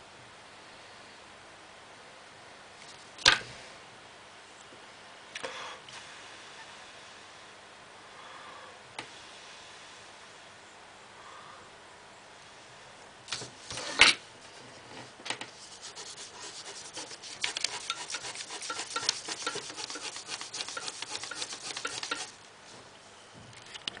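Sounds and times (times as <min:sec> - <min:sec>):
pencil scribbling on paper: 0:15.6 - 0:22.4.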